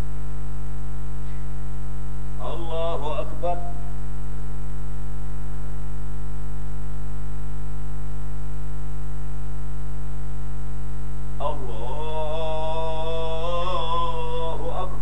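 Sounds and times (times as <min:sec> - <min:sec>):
electrical mains hum: 0:00.0 - 0:15.0
man chanting: 0:02.3 - 0:04.0, 0:11.4 - 0:15.0.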